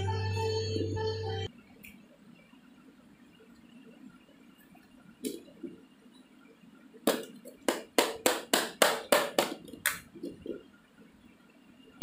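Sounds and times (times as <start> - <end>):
hand slapping plastic bucket: 7.1 - 10.1.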